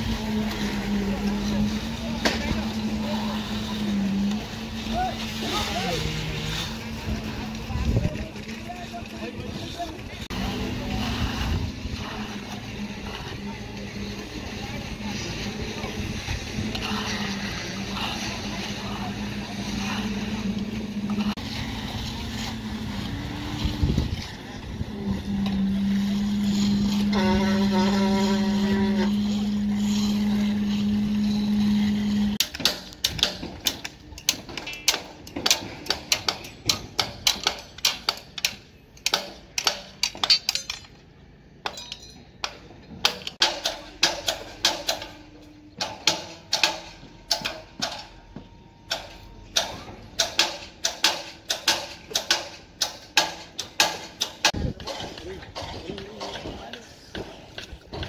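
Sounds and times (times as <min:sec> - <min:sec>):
steady machine drone: 0:00.0 - 0:36.0
hammer striking steel: 0:29.2 - 0:41.0, 0:41.6 - 0:56.5.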